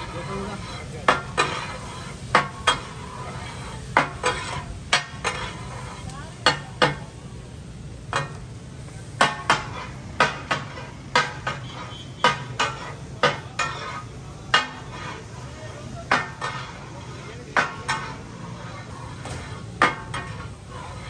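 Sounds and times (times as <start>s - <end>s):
metal utensils clanking on griddle: 0.0s - 21.0s.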